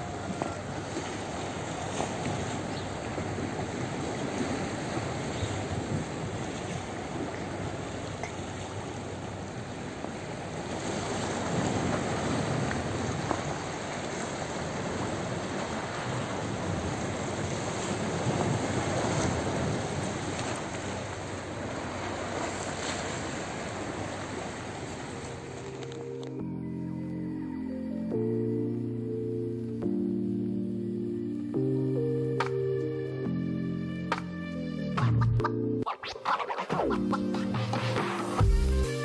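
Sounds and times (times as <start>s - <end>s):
wind on microphone: 0.0s - 25.3s
sea water lapping on rocks: 0.0s - 26.1s.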